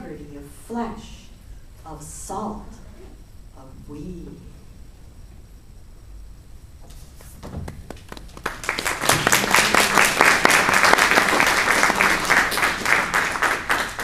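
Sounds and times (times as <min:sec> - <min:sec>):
audience applauding: 0:07.7 - 0:14.0.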